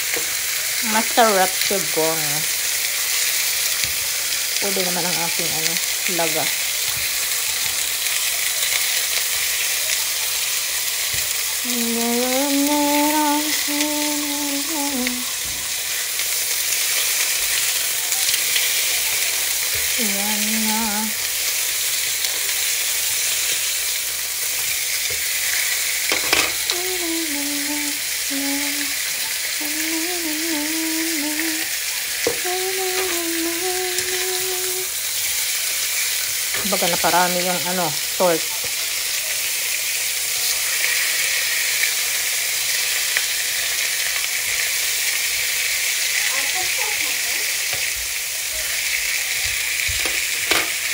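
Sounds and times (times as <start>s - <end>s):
meat sizzling in a pan: 0.0s - 50.9s
person humming: 11.6s - 15.5s, 19.8s - 21.2s, 26.5s - 35.0s.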